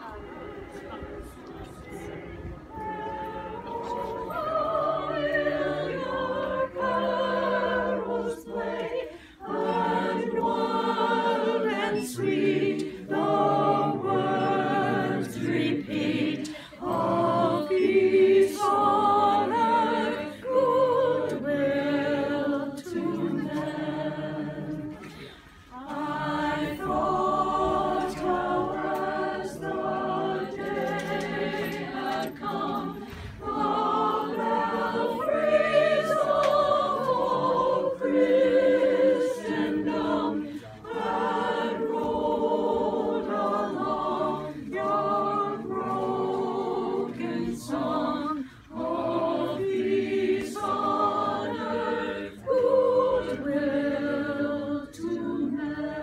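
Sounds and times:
group singing carol a cappella: 0.0 - 56.0.

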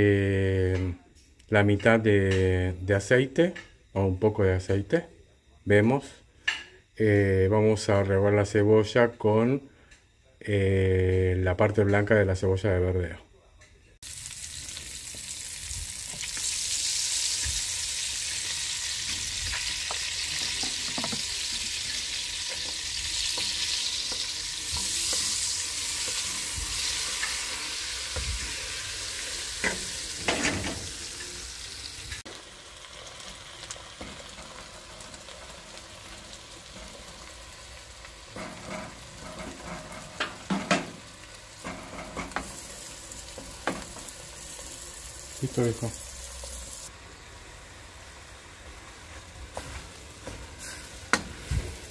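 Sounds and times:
onions sizzling in a pan: 14.0 - 51.9.

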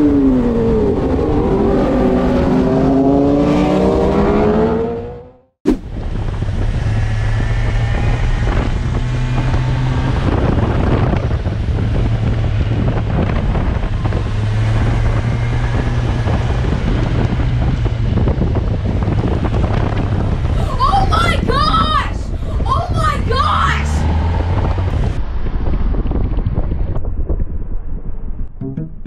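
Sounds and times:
motorcycle engine droning: 0.0 - 20.5
wind noise on microphone: 5.7 - 29.0.

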